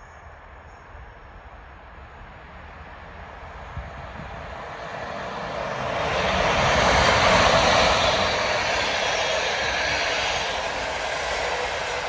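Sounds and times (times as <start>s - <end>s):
train passing: 0.0s - 12.0s.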